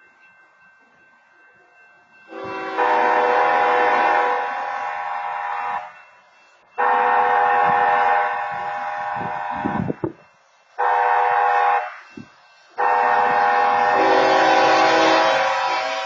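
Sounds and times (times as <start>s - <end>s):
locomotive air horn blasts: 2.3s - 5.9s, 6.8s - 9.9s, 10.8s - 12.0s, 12.8s - 16.0s.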